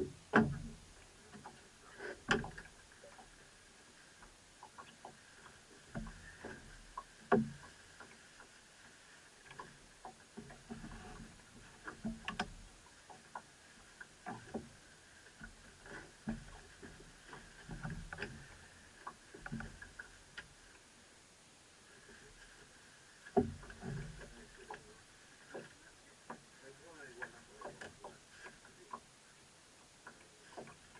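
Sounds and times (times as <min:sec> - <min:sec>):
knocks and thuds on boat: 0:00.0 - 0:03.3, 0:05.8 - 0:08.2, 0:09.5 - 0:13.5, 0:14.2 - 0:14.8, 0:15.4 - 0:20.2, 0:23.3 - 0:29.1.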